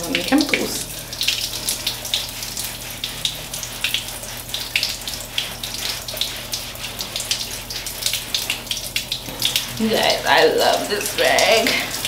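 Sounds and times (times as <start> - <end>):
shower water running: 0.0 - 12.0
sponge scrubbing wet skin: 0.0 - 12.0.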